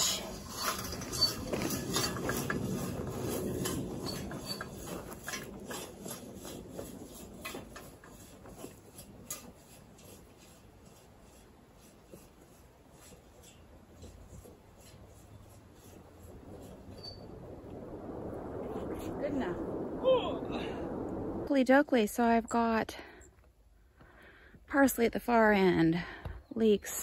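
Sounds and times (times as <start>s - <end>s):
metal tool scraping through soil: 0.0s - 17.3s.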